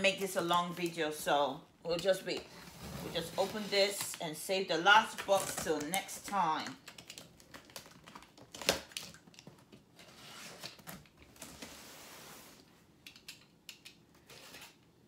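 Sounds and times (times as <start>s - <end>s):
cardboard tearing or rustling: 14.2s - 14.8s.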